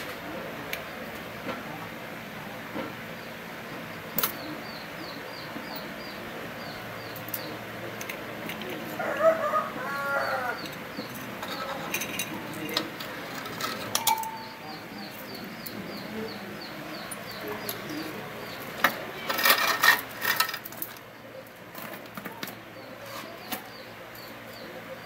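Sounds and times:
chicken calling: 8.9s - 11.0s
motorcycle chain clinking: 10.6s - 14.7s.

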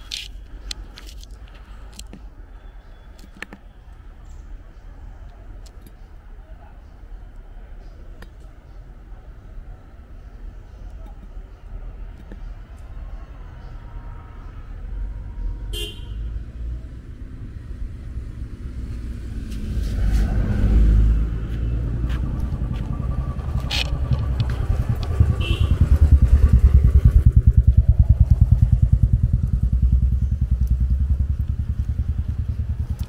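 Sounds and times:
vehicle passing: 16.5s - 33.0s
motorcycle engine passing by: 18.2s - 33.0s.

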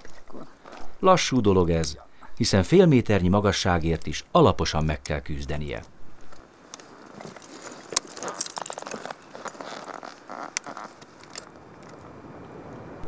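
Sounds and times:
clothing rustling: 6.2s - 11.5s
metal climbing hardware clinking: 6.7s - 12.0s.

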